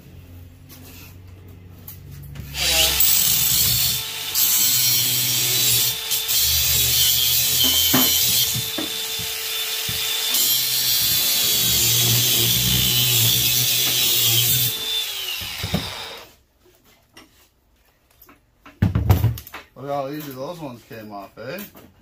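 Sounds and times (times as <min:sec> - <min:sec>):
angle grinder cutting metal: 0:02.5 - 0:16.3
grinder spinning down: 0:02.5 - 0:16.3.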